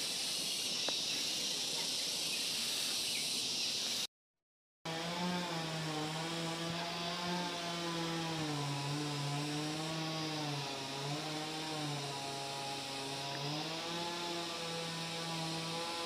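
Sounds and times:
small engine revving: 4.9s - 16.0s.

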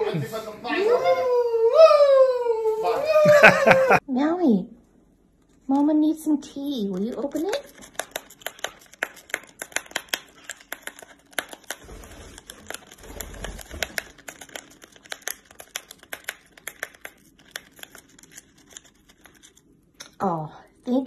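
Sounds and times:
bird tearing foil packaging: 6.8s - 20.0s.

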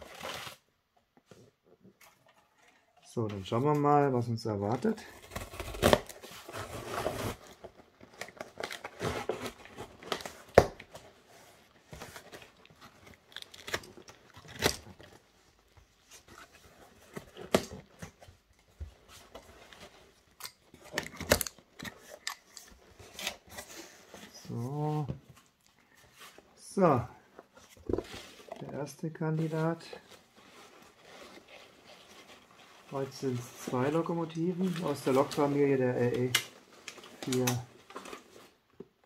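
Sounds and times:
cardboard and tape ripping: 5.0s - 11.2s, 11.8s - 15.2s, 36.1s - 38.6s
box cutter slitting tape: 5.2s - 7.4s.

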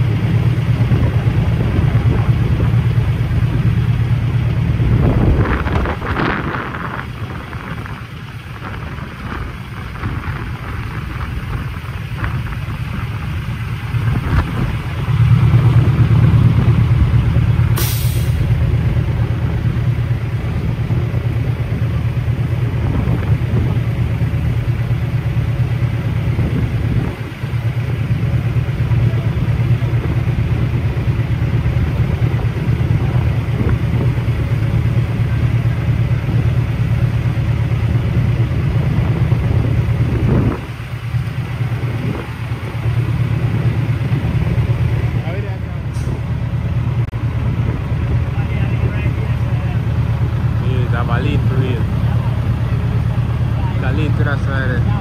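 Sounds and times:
truck diesel engine humming: 0.0s - 55.0s
air hiss: 17.7s - 18.5s.

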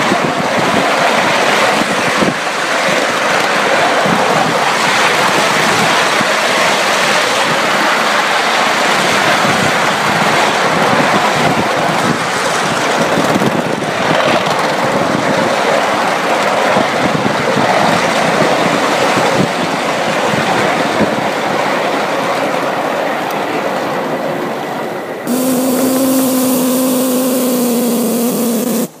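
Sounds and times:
steam locomotive exhaust: 25.3s - 29.0s.

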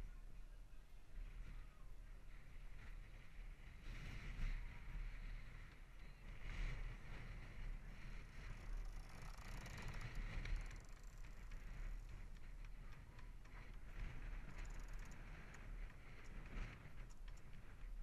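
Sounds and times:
wind rumble on microphone: 0.0s - 18.0s
light ticks: 8.6s - 18.0s.

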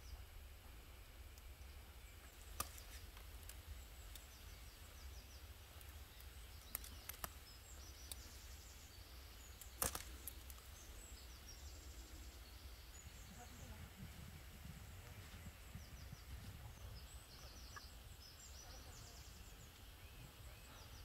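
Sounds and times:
low steady rumble: 0.0s - 21.0s
rose hips snapping off stems: 2.4s - 4.3s, 5.8s - 8.2s, 9.5s - 10.7s.

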